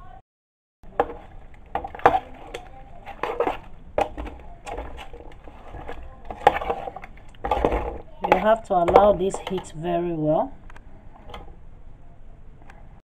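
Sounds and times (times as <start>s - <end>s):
metal spoon scraping pot: 0.9s - 10.3s, 11.1s - 11.6s.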